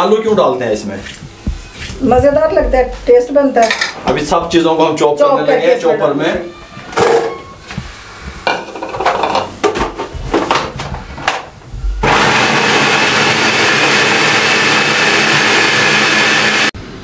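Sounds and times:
electric food processor running: 12.0 - 16.7.

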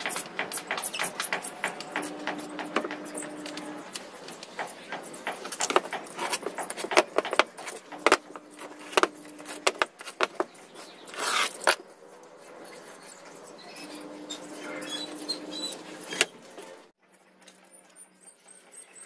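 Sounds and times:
tools tapping on wooden workbench: 0.0 - 10.5
scraping rustle: 0.0 - 16.9.

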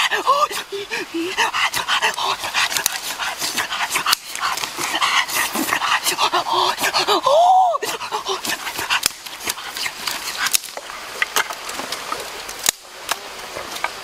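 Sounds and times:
whining vocal cry: 0.0 - 2.5, 4.8 - 8.7.

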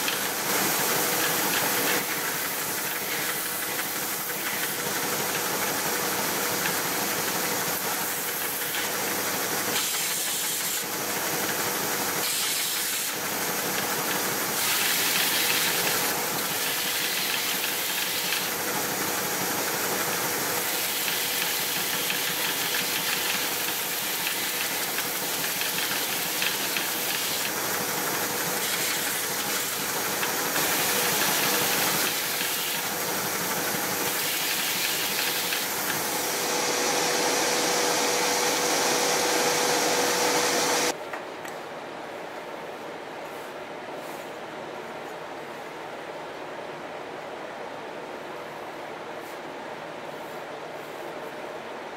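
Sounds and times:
belt sander running: 20.6 - 40.9
wood sanding hiss: 20.6 - 40.9.

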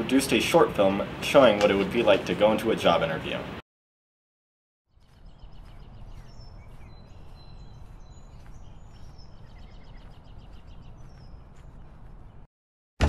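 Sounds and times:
birds chirping: 4.9 - 12.5.

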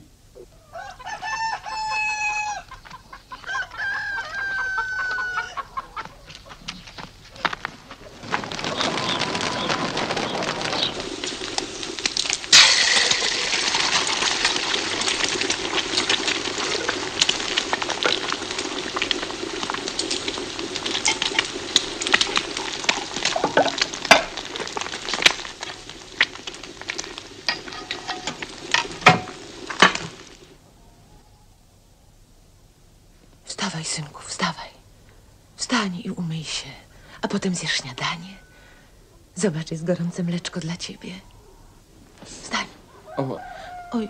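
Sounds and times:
eggs sizzling in a pan: 8.6 - 30.6
sharp knocks of pots: 27.5 - 30.1.

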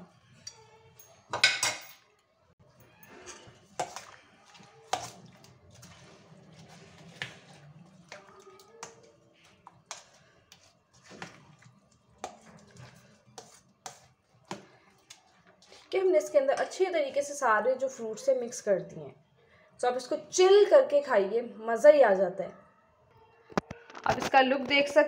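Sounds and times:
wet stirring: 2.6 - 16.9
spoon scraping steel bowl: 2.8 - 14.2.

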